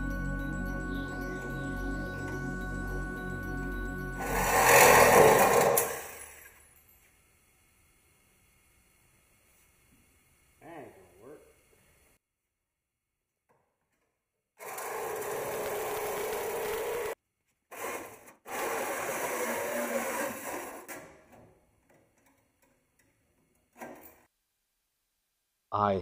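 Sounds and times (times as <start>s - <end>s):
reciprocating saw cutting metal: 4.2s - 6.5s, 17.8s - 20.9s.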